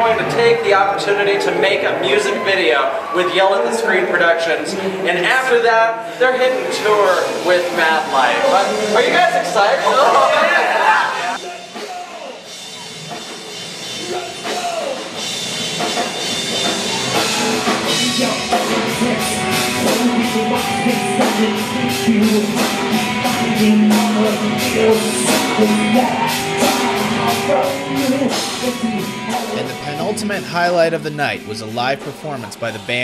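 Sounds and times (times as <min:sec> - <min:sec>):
fast drum and cymbal beat: 0:06.4 - 0:10.3, 0:11.3 - 0:33.0
rock band playing live: 0:06.6 - 0:33.0.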